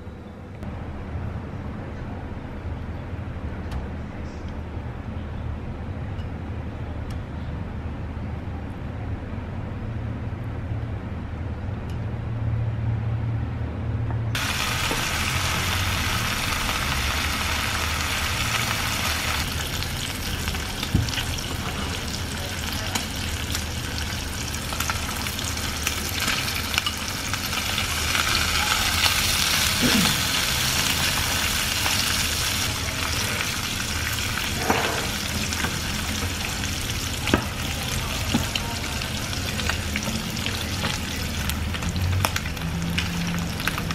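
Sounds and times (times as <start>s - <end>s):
meat sizzling in a frying pan: 14.4s - 43.9s.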